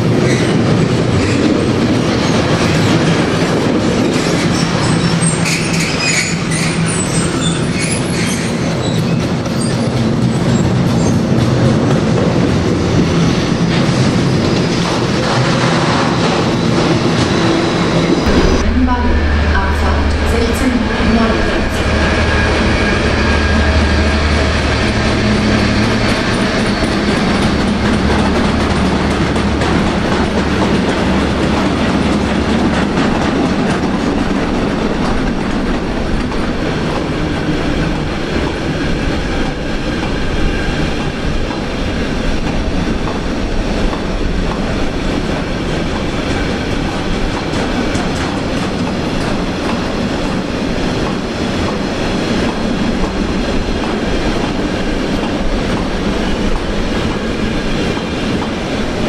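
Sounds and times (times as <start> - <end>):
freight train rumbling past: 0.0 - 59.0
low hum: 18.2 - 28.9.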